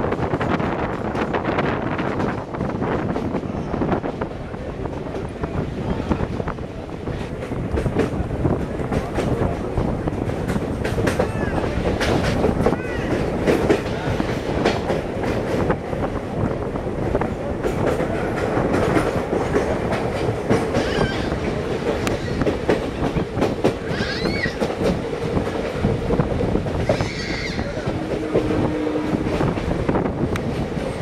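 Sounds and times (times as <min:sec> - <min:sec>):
train rumbling and rattling: 0:00.0 - 0:31.0
wheels clicking over rail joints: 0:07.2 - 0:15.7.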